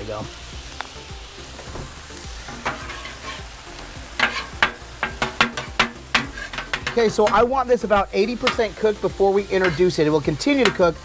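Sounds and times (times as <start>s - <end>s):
meat and cabbage sizzling on griddle: 0.0s - 11.0s
spatulas clanking on griddle: 1.6s - 11.0s
metal spatulas scraping steel plate: 2.5s - 3.5s, 4.2s - 7.5s, 9.5s - 10.9s.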